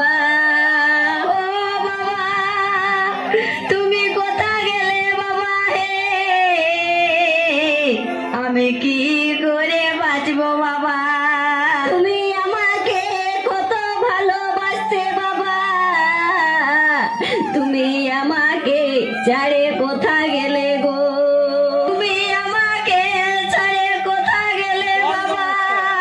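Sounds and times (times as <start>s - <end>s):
person singing wavering melody: 0.0s - 26.0s.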